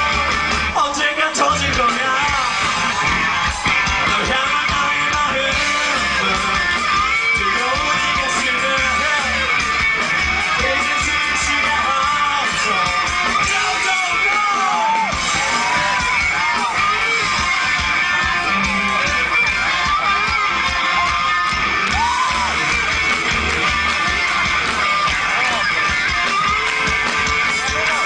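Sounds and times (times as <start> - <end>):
strummed guitar: 0.0 - 28.0
person singing: 4.0 - 9.6.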